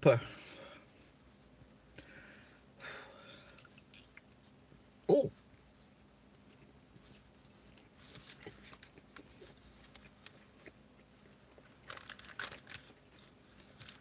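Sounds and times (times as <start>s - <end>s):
paper wrapper crinkling: 11.8s - 14.0s.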